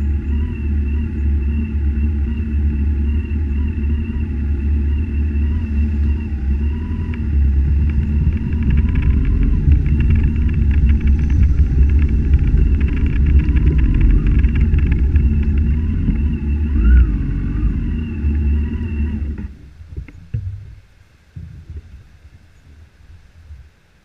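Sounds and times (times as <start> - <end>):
motorcycle engine rumbling: 0.0 - 23.7.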